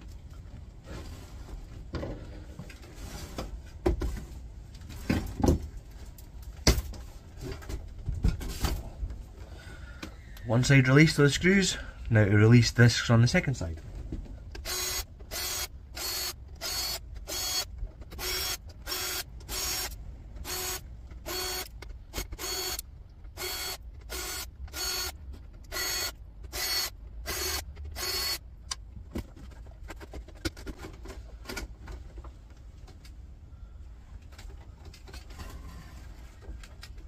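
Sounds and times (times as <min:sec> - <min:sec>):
cordless drill whining: 0:14.6 - 0:22.8, 0:23.4 - 0:28.4
faint clicks and handling noises: 0:28.6 - 0:37.0.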